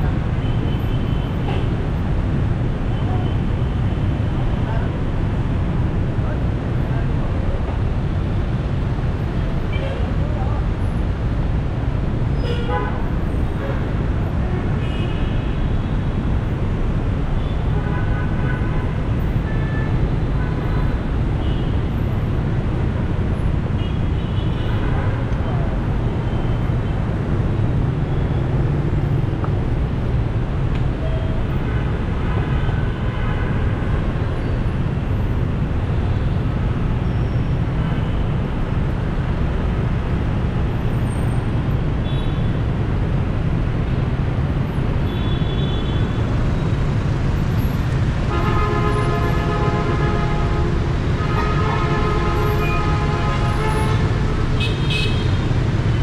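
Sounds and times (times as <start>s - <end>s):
vehicle engine and road noise: 0.0s - 56.0s
vehicle horns honking: 48.3s - 55.4s.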